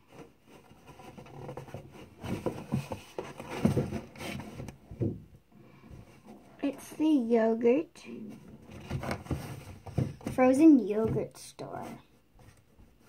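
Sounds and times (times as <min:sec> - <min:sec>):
cardboard box scraping and rubbing: 0:00.0 - 0:04.8, 0:08.3 - 0:13.0.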